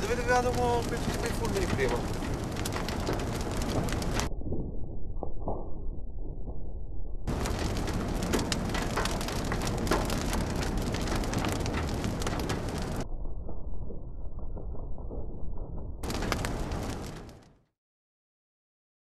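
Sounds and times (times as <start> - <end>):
heavy rain on car roof: 0.0 - 4.3, 7.3 - 13.0, 16.0 - 17.4.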